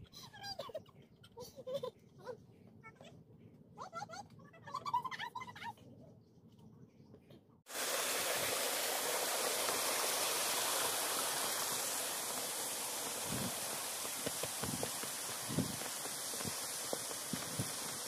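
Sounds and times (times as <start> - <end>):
steady rushing noise: 7.7 - 18.0
footsteps on dirt trail: 10.7 - 18.0.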